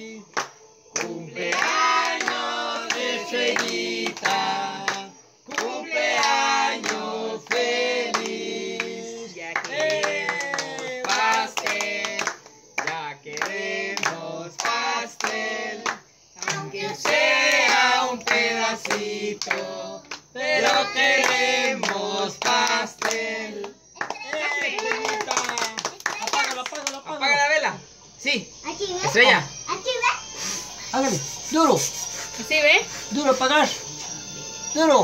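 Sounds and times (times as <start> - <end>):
people singing together: 0.0 - 25.6
hands clapping along: 0.3 - 9.0, 9.6 - 27.0.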